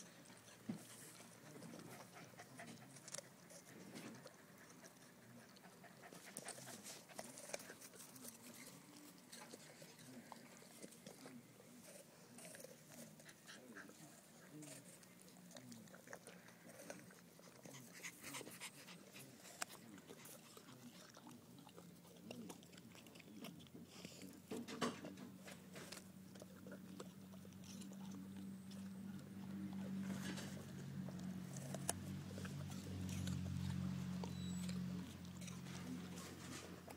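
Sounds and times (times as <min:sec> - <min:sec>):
dog panting: 0:00.0 - 0:24.5
dog chewing crunches: 0:00.0 - 0:36.9.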